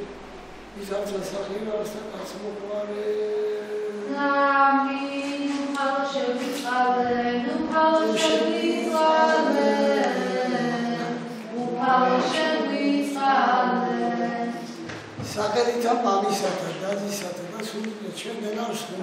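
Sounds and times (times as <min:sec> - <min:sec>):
choir singing chant: 0:03.5 - 0:15.2.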